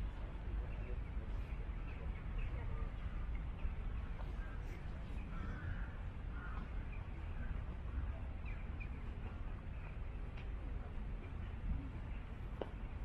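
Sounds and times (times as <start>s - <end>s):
crows cawing: 5.3s - 6.7s.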